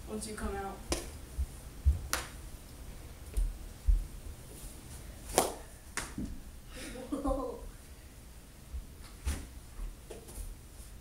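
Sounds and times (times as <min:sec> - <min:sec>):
dull low thumps: 0:01.3 - 0:02.1, 0:03.4 - 0:04.2.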